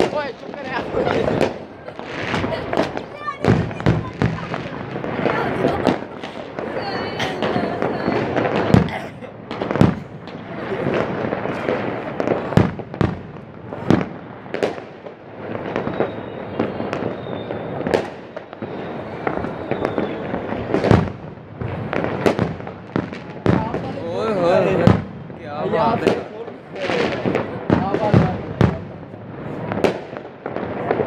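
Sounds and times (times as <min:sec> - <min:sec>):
firework shells bursting: 0:00.0 - 0:24.0.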